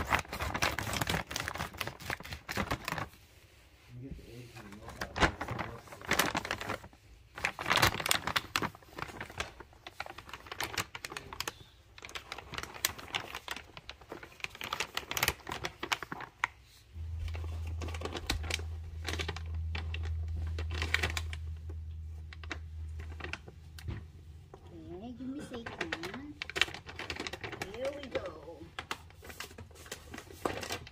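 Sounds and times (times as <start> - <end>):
steady low hum: 16.9 - 25.4.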